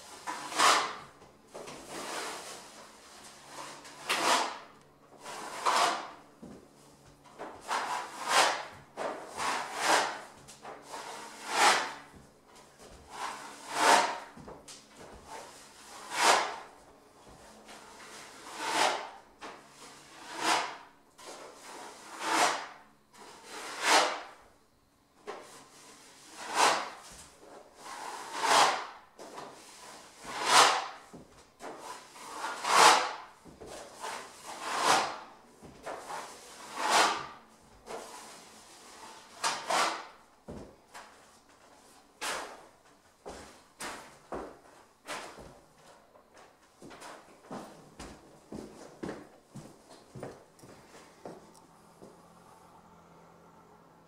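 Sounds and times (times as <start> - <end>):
drywall knife scraping: 0.0 - 24.4, 25.2 - 40.3, 41.0 - 42.7.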